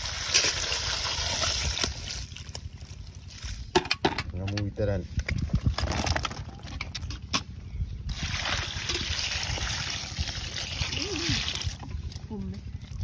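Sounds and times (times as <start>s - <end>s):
water pouring and splashing: 0.0s - 3.7s, 8.1s - 13.0s.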